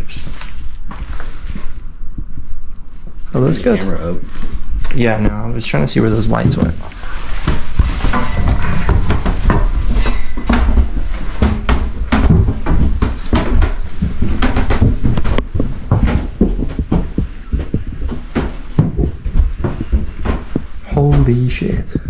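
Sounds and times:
footsteps on wooden stairs: 0:04.2 - 0:21.6.

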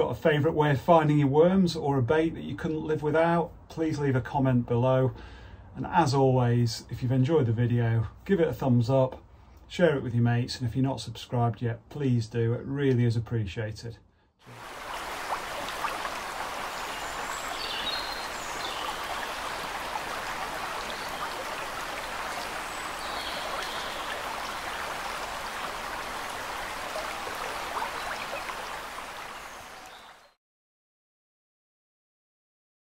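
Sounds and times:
stream water rushing: 0:14.5 - 0:30.3.

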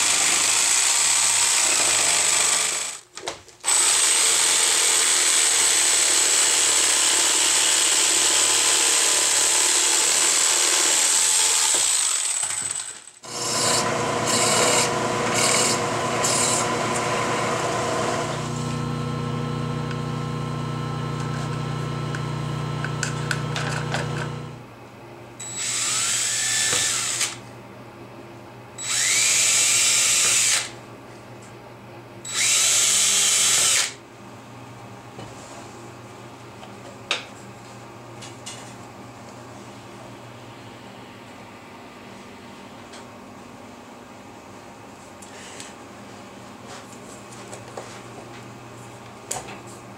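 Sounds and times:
cordless drill drilling plastic pipe: 0:00.0 - 0:03.0, 0:03.6 - 0:24.6, 0:25.4 - 0:27.4, 0:28.8 - 0:30.7, 0:32.3 - 0:34.0
power tool whining cutting pipe: 0:03.7 - 0:24.6, 0:25.4 - 0:27.4, 0:28.8 - 0:30.7, 0:32.3 - 0:34.0.

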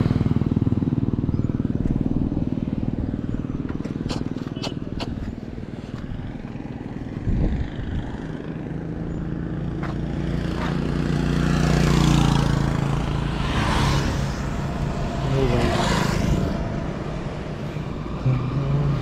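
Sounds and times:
motorcycle engine idling: 0:00.0 - 0:09.7
vehicle passing: 0:05.5 - 0:19.0.

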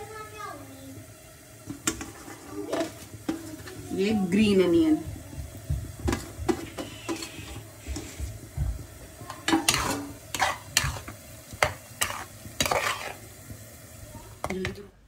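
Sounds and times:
spoon scraping in a pan: 0:01.7 - 0:03.8, 0:06.1 - 0:08.4, 0:09.2 - 0:13.4.

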